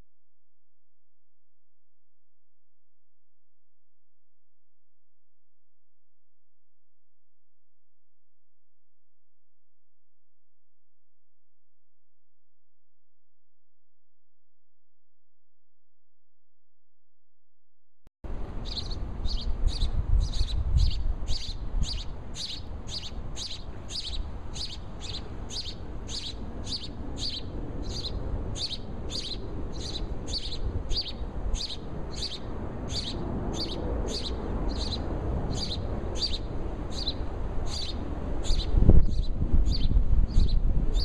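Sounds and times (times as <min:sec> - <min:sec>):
sparrows chirping: 0:18.4 - 0:41.0.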